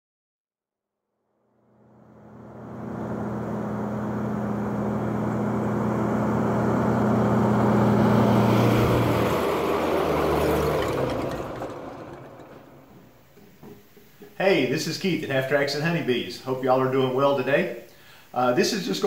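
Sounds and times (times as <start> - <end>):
vehicle engine humming: 1.6 - 14.3.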